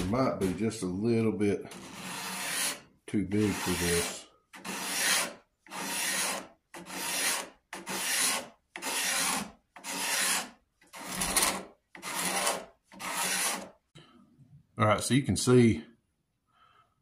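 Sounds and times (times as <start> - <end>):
cabinet scraper shaving wood: 1.7 - 13.8.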